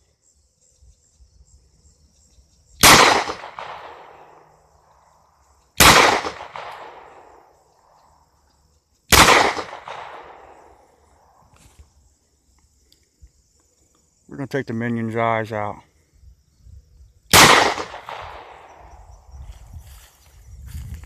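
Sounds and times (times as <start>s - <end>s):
pistol shots with echo: 2.8s - 4.5s, 5.8s - 7.4s, 9.1s - 10.7s, 17.3s - 19.0s.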